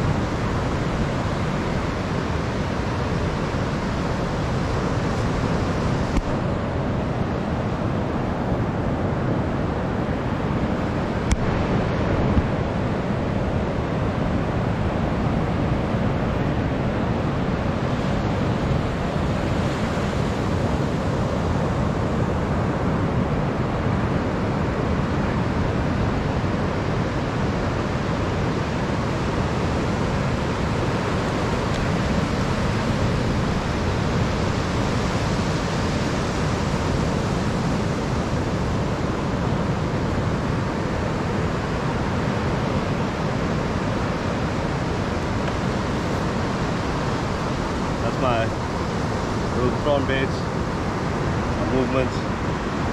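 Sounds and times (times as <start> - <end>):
ocean surf breaking on a beach: 0.0 - 52.9
wind rumbling on microphone: 0.0 - 52.9.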